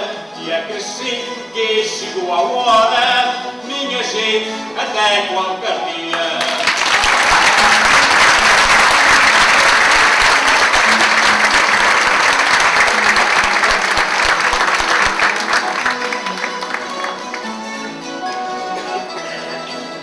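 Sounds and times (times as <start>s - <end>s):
audience applauding: 6.2s - 19.2s.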